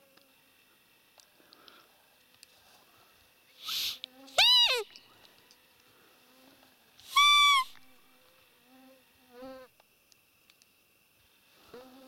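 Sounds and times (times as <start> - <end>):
deer call squeak: 3.7 - 4.9, 7.1 - 7.8.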